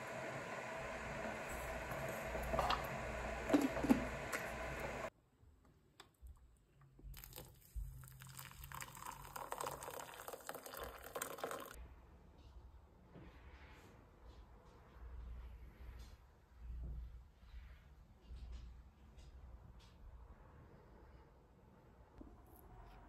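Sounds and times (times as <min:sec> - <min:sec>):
water pouring into a mug: 0:07.1 - 0:11.8.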